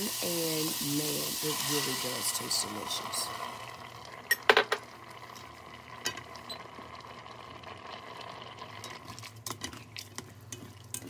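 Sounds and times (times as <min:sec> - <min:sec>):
broth simmering in a pot: 0:00.0 - 0:11.0
metal spoon stirring: 0:08.7 - 0:11.0.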